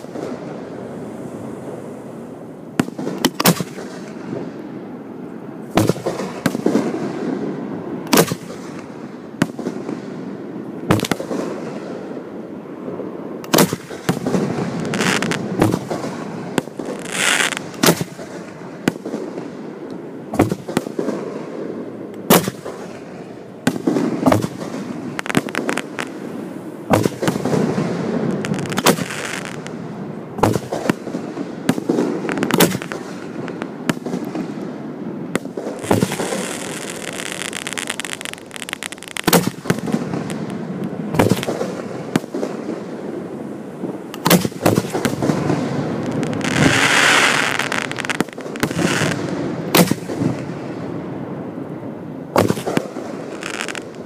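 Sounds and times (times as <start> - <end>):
continuous low noise: 0.0 - 54.0
firework shells bursting: 28.3 - 29.8, 30.4 - 34.4, 35.4 - 42.6.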